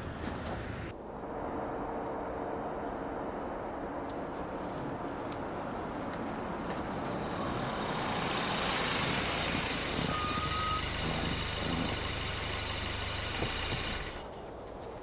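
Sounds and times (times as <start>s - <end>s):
tyres on packed snow: 0.0s - 1.0s, 4.0s - 15.0s
car engine running: 7.3s - 14.3s.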